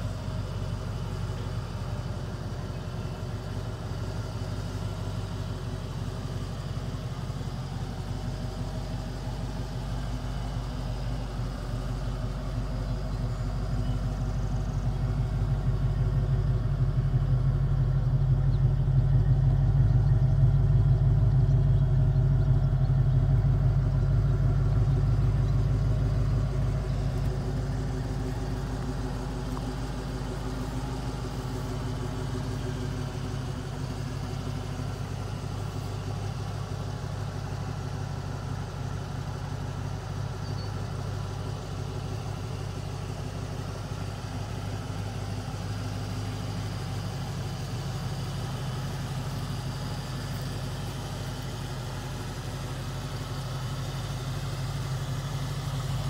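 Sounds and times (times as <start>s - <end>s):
car engine idling: 0.0s - 56.0s.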